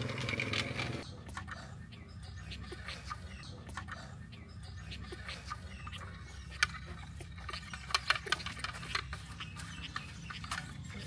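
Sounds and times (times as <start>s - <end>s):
toy cart wheels rattling: 7.4s - 10.8s.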